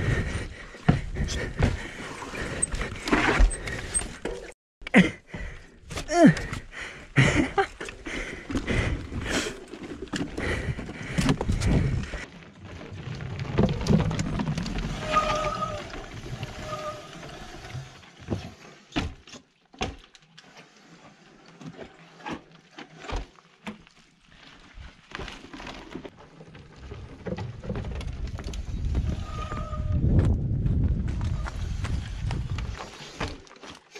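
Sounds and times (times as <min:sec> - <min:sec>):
mountain bike rattling on trail: 0:07.2 - 0:17.7, 0:23.8 - 0:29.8.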